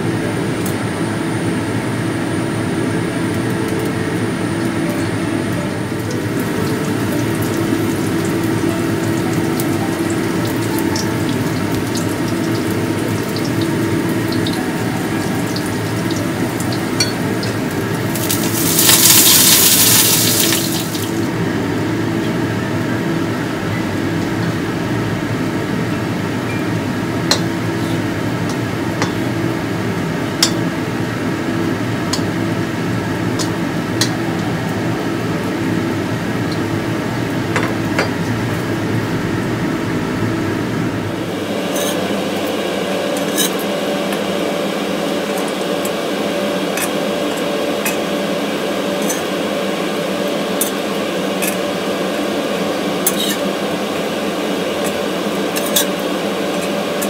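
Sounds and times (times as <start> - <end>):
fritters frying in oil: 6.0 - 21.2.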